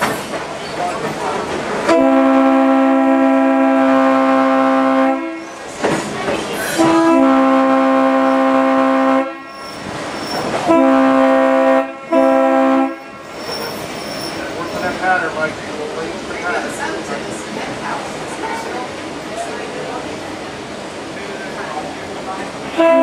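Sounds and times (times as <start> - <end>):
rail clatter: 0.0 - 2.3, 5.4 - 8.7, 9.4 - 23.0
multi-chime train horn blasts: 1.9 - 5.6, 6.8 - 9.6, 10.7 - 13.2, 22.8 - 23.0.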